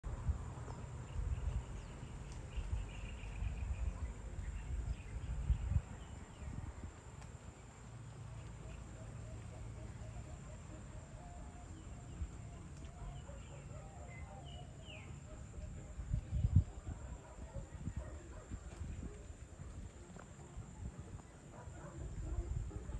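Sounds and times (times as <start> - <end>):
high insect hum: 0.1 - 22.9
birds chirping and calling: 0.7 - 6.6, 8.0 - 18.6.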